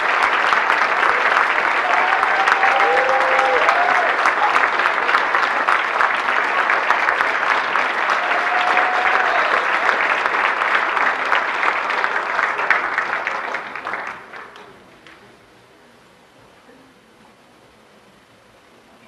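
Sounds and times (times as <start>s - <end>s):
audience applauding: 0.0s - 15.2s.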